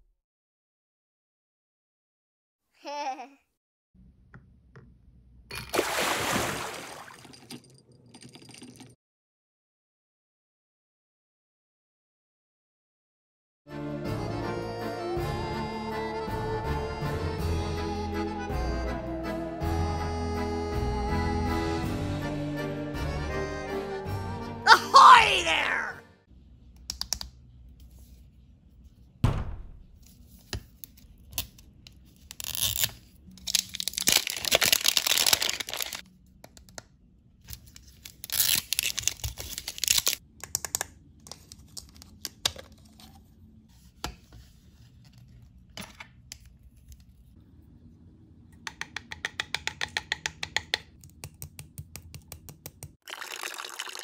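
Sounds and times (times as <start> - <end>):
wrapping torn and crinkled: 31.0 - 36.0, 37.5 - 40.2
hard plastic clicks and taps: 48.6 - 52.9.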